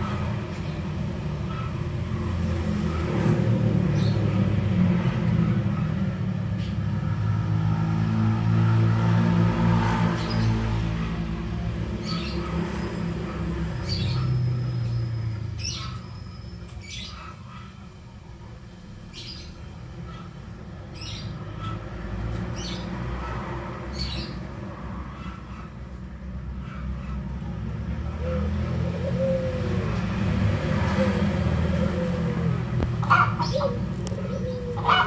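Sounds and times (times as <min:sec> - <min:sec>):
birds chirping: 0:09.9 - 0:25.9, 0:26.6 - 0:35.0.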